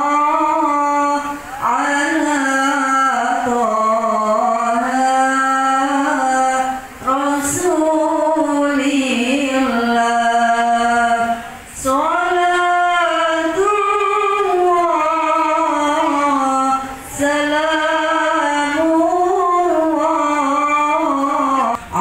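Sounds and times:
women singing in unison: 0.0 - 22.0.

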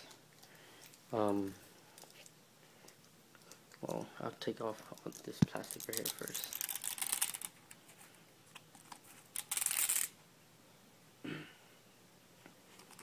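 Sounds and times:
plastic film peeling: 5.0 - 7.6.

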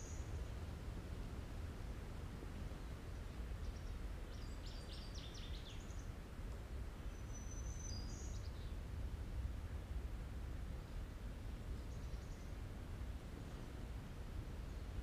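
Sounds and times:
songbirds singing: 0.0 - 0.4, 2.8 - 6.2, 7.0 - 8.9, 11.7 - 12.6
low background rumble: 0.0 - 15.0.

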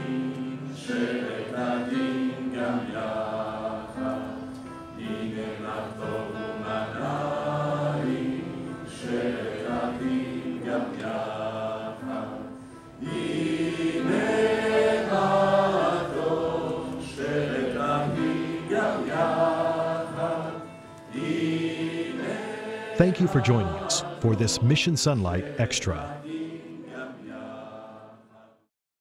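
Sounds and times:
choir singing: 0.0 - 28.7.

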